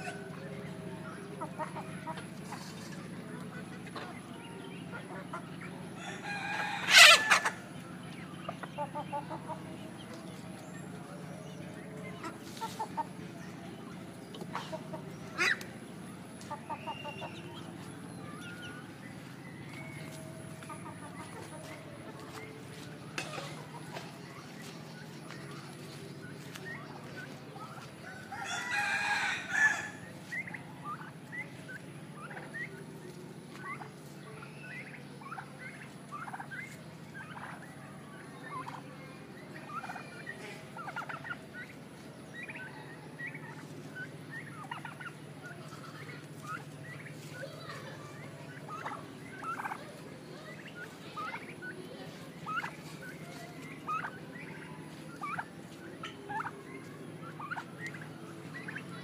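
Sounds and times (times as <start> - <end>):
turkeys clucking and yelping: 0.0 - 59.0
long loud turkey call: 6.0 - 7.8, 28.1 - 31.1.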